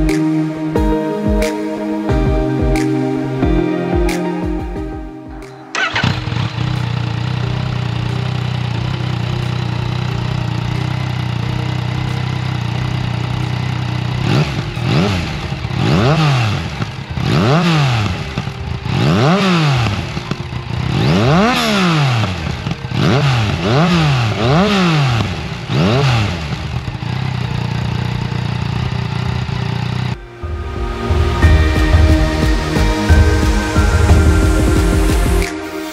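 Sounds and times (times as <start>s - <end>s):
motorcycle throttle blips: 5.7s - 30.2s
motorcycle engine idling: 5.8s - 30.5s.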